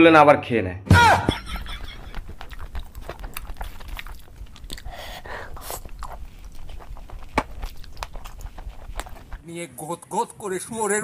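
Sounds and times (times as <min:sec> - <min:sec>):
person chewing and smacking: 0:01.5 - 0:09.4.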